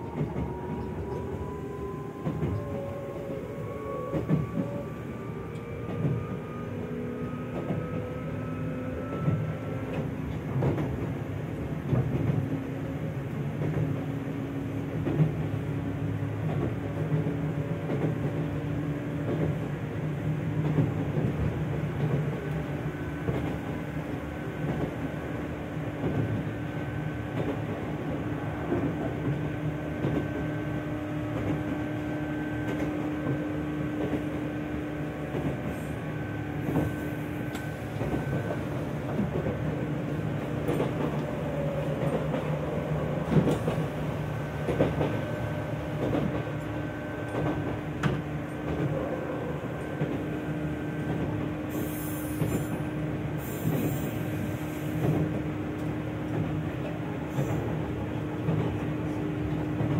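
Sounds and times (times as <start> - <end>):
rail clicks: 0.0 - 59.9
train motor and gear whine: 0.0 - 59.9
wheel and track rumble: 0.0 - 59.9.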